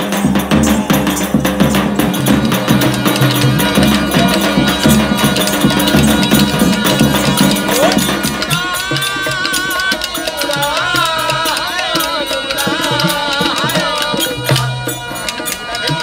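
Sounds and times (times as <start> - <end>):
low drum strokes: 0.0 - 7.9
harmonium drone: 0.0 - 16.0
man singing: 0.0 - 16.0.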